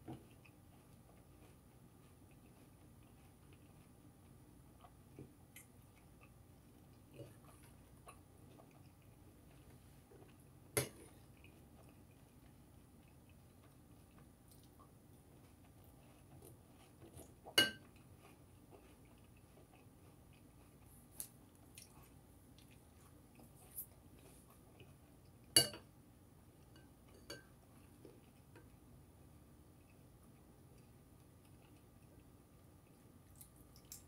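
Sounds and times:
chewing crunchy cereal: 0:00.1 - 0:25.6, 0:26.5 - 0:34.0
spoon clinking against bowl: 0:25.6 - 0:25.8.

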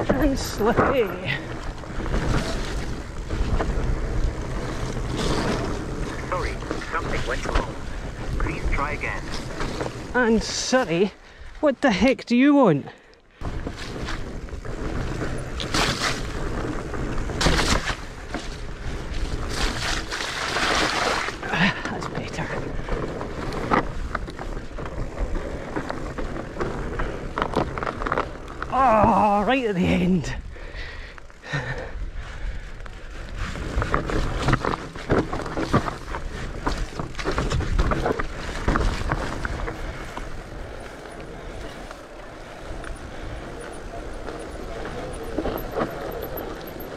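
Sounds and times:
bike tyres rumbling: 0:00.0 - 0:12.3, 0:12.9 - 0:46.9
bike clattering and knocking: 0:33.8 - 0:42.0, 0:42.6 - 0:46.9.

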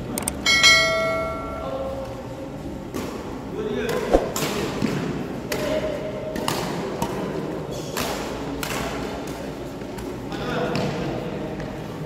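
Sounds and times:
racket hitting shuttlecock: 0:03.9 - 0:07.3.

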